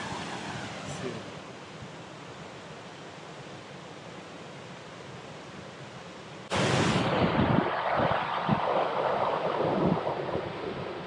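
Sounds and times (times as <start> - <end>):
low rumbling gusts: 0.0 - 2.0, 6.5 - 11.0.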